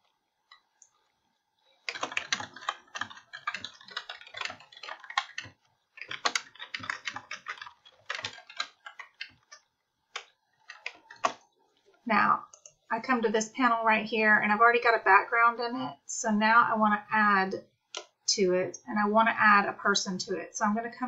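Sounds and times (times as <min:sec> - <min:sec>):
computer keyboard typing: 0:01.8 - 0:11.4.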